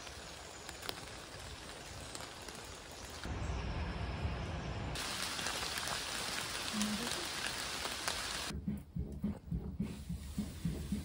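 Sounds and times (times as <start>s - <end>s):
rain falling through trees: 0.0s - 8.5s.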